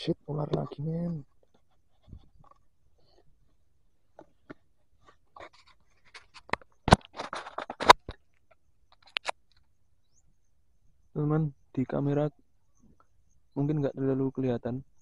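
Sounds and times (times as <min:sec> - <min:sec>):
fingers scratching camera body: 0:00.6 - 0:03.3, 0:04.2 - 0:08.0
small clicks: 0:05.4 - 0:09.7.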